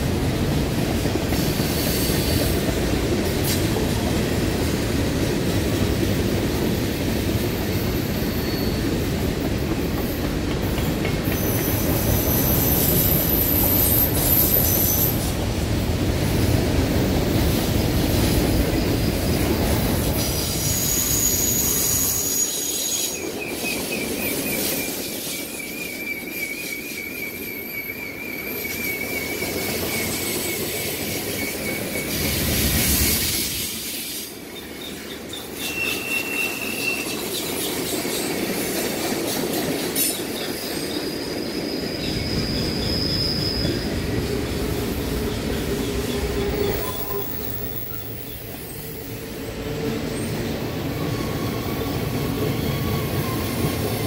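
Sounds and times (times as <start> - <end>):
train wheels rumbling on rail: 0.0 - 54.0
wheel flange squealing: 40.8 - 44.0.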